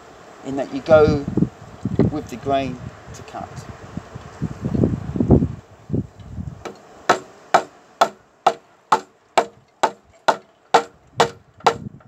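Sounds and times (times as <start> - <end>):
chisel struck into wood: 6.6 - 11.9.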